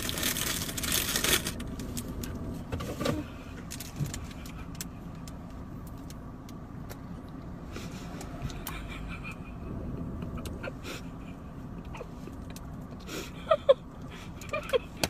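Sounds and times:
plastic wrapper crinkling: 0.0 - 1.6
low hum inside a car: 0.0 - 15.0.

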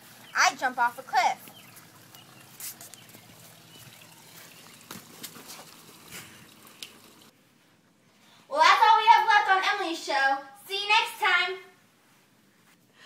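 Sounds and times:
faint background hiss: 0.0 - 13.0.

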